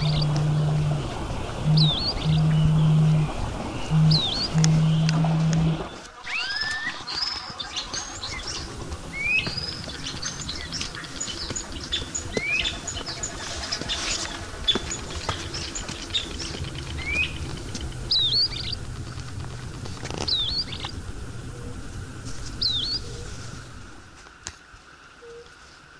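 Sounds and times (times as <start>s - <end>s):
low steady rumble: 0.0s - 6.1s, 7.2s - 24.4s
rising whistled bird call: 0.0s - 7.4s, 15.5s - 18.8s, 20.2s - 20.9s, 22.5s - 23.5s.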